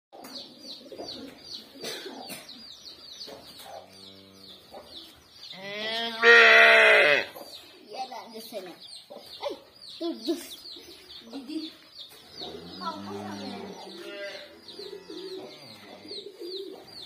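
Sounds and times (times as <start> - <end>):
chick peeping: 0.2 - 5.5, 7.4 - 17.0
calf bawling: 5.6 - 7.3.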